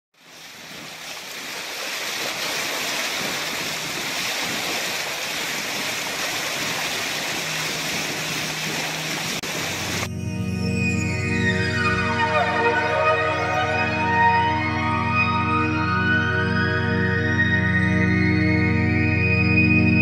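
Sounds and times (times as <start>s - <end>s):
boat wake water rushing: 0.2s - 10.1s
music: 7.4s - 20.0s.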